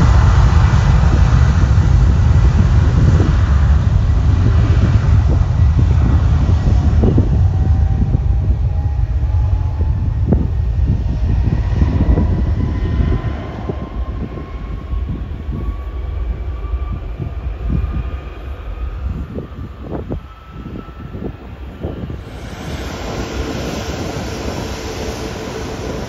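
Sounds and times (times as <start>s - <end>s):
jet engine whine: 0.0s - 26.0s
jet engines low rumble: 0.0s - 26.0s.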